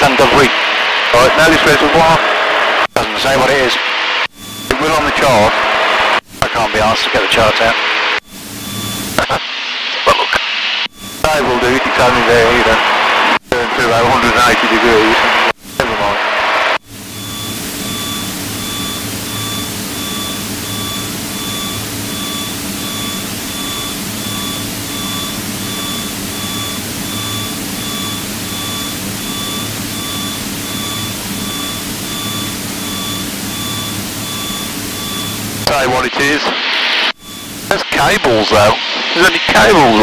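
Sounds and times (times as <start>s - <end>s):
repeating high beep: 8.2s - 9.3s, 17.1s - 36.4s, 37.1s - 38.2s.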